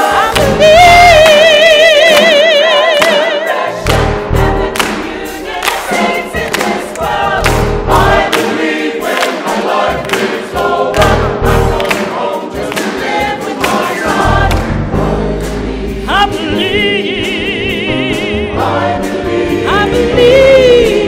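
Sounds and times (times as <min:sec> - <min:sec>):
church choir singing: 0:00.0 - 0:21.0
piano: 0:00.0 - 0:21.0
walking bass: 0:14.1 - 0:16.8.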